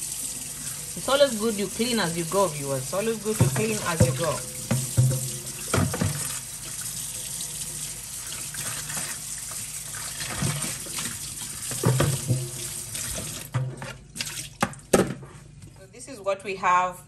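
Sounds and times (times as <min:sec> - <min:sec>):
tap running into metal sink: 0:03.2 - 0:06.8, 0:10.4 - 0:13.9.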